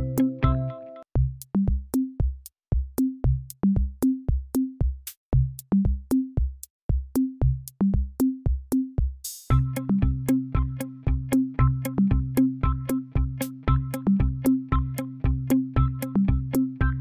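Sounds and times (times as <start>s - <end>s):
electronic drum-machine beat: 0.0s - 17.0s.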